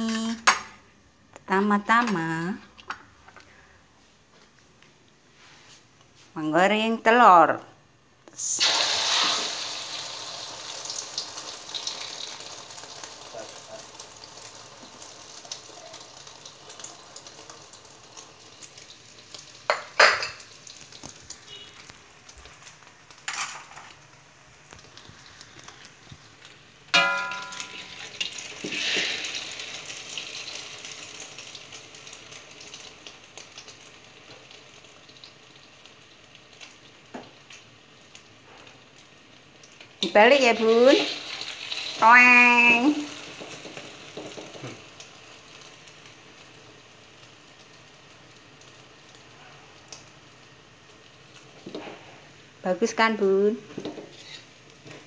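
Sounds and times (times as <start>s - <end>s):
egg sizzling in hot oil: 8.4s - 55.0s
wok knocks and clanks: 27.0s - 29.1s, 43.3s - 44.8s.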